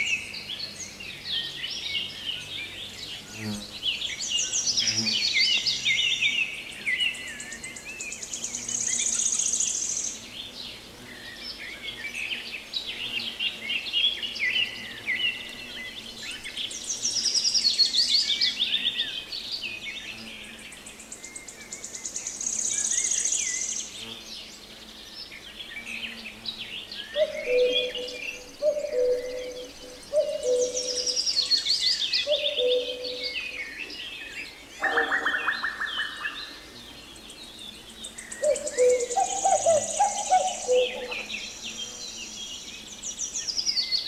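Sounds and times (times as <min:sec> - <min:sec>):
songbirds trilling and chirping: 0:00.0 - 0:44.0.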